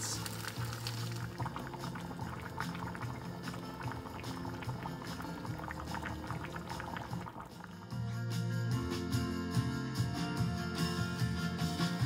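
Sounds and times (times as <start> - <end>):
chilli bubbling and popping: 0.0 - 8.1
background music: 0.0 - 12.0.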